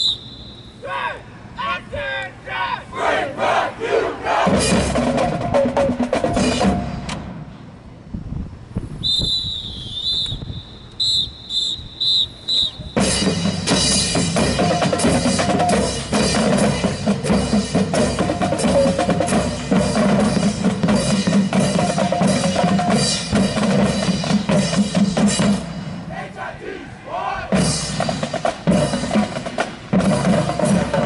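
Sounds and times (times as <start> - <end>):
whistle blasts: 0.0 - 1.0, 9.0 - 13.4
marching band playing: 3.0 - 7.5, 12.5 - 31.0
drums: 4.2 - 9.8, 12.3 - 31.0.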